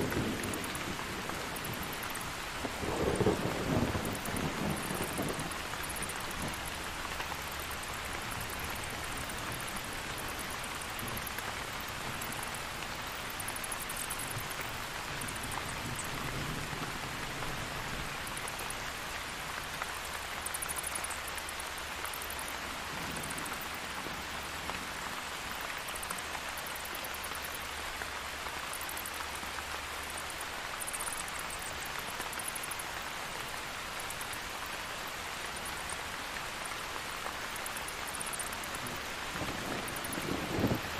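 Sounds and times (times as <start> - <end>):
low rumbles of thunder: 0.0 - 6.7, 38.8 - 40.9
steady rain falling: 0.0 - 40.9.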